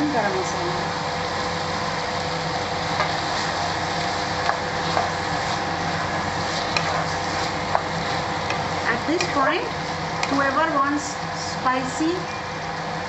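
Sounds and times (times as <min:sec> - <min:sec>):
mechanical hum and hiss: 0:00.0 - 0:13.0
spatula stirring curry in pan: 0:02.6 - 0:10.4.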